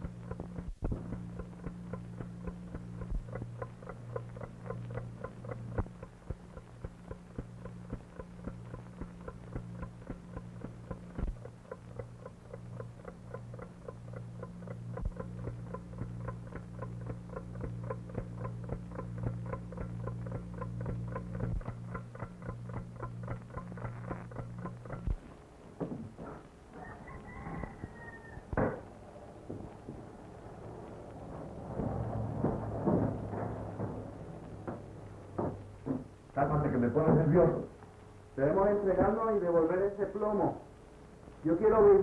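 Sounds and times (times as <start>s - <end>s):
alarm clock ticking: 0.0s - 25.3s
low mains hum: 0.0s - 42.0s.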